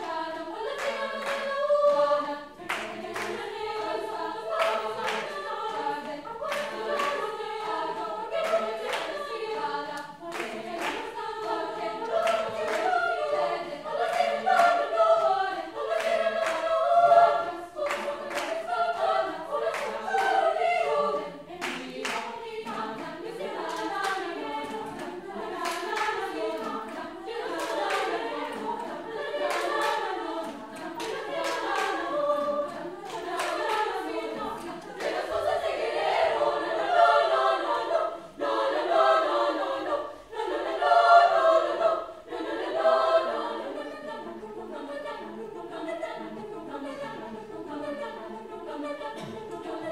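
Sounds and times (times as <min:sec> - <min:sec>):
girls choir singing: 0:00.0 - 0:49.9
hand claps: 0:00.7 - 0:01.5, 0:02.7 - 0:03.5, 0:04.5 - 0:05.8, 0:06.5 - 0:07.3, 0:10.0 - 0:11.1, 0:12.0 - 0:13.0, 0:16.0 - 0:16.7, 0:17.8 - 0:18.7, 0:19.7 - 0:20.4, 0:21.6 - 0:34.0.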